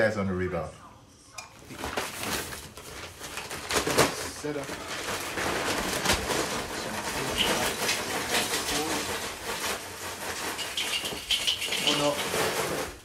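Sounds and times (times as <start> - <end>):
charcoal clattering into metal: 3.3 - 13.0.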